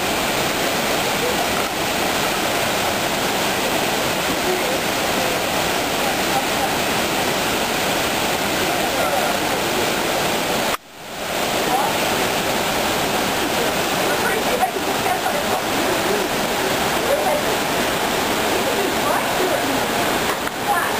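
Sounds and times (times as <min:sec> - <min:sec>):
waterfall rushing: 0:00.0 - 0:20.9.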